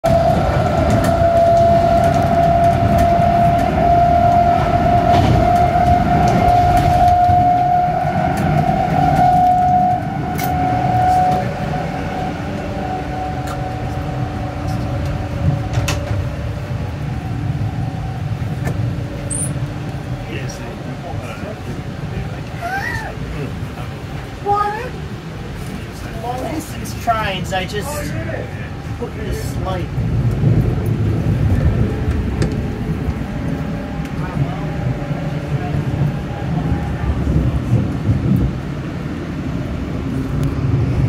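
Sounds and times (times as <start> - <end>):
high steady whine: 0.0 - 41.0
train wheels rumbling: 0.0 - 41.0.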